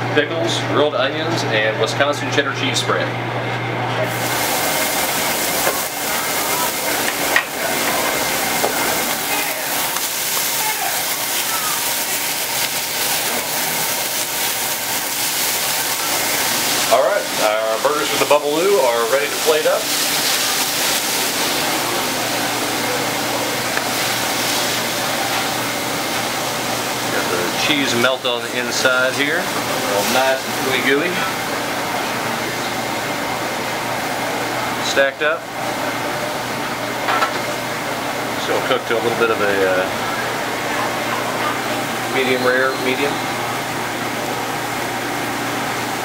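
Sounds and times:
exhaust hood fan humming: 0.0s - 46.0s
patties sizzling on a griddle: 4.1s - 33.3s.

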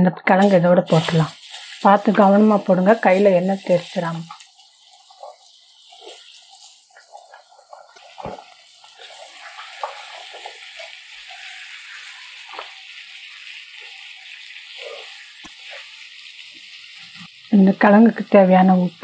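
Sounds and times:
potatoes sizzling in hot oil: 0.3s - 19.0s
steel spoon scraping pan: 0.9s - 12.2s.

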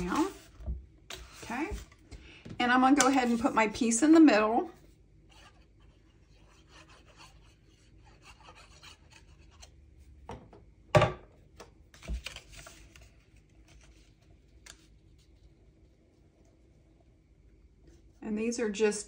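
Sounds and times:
paper rustling: 0.0s - 2.0s, 12.0s - 15.4s.

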